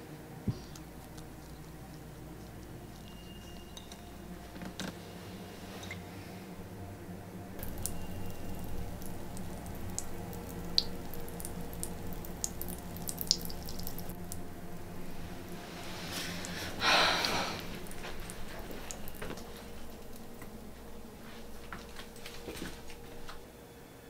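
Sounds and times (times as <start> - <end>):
low steady hum: 0.0 - 24.0
water dripping into sink: 7.6 - 14.5, 17.2 - 23.0.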